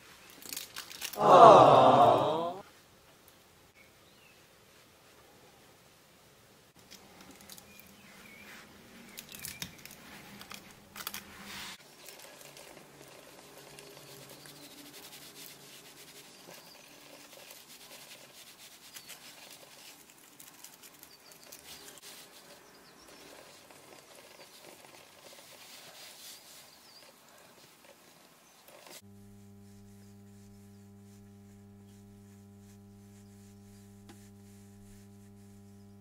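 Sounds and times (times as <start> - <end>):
paper rustling and crinkling: 0.2 - 1.2, 6.9 - 14.6.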